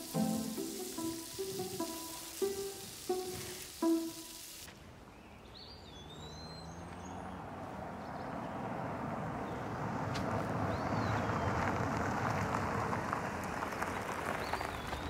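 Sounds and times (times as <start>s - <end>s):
short music note: 0.0s - 4.6s
high hiss: 0.0s - 4.7s
bird chirps: 5.2s - 7.4s
car approaching on road: 5.3s - 15.0s.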